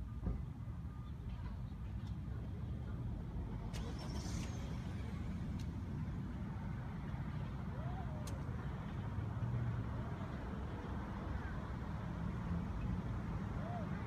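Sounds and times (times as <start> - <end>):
passing cars rumbling: 3.1 - 14.0.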